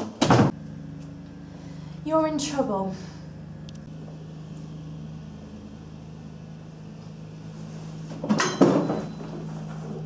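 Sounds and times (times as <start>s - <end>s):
steady low hum: 0.0s - 10.0s
chair scraping and clattering: 7.7s - 10.0s.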